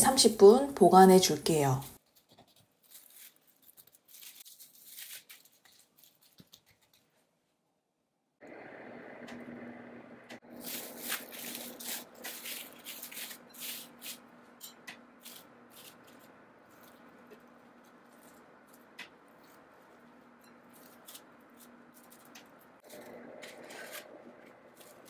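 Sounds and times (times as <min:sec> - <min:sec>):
cling film crinkling: 0:02.0 - 0:07.2, 0:10.5 - 0:14.3, 0:15.2 - 0:25.0
faint steady hum: 0:08.4 - 0:25.0.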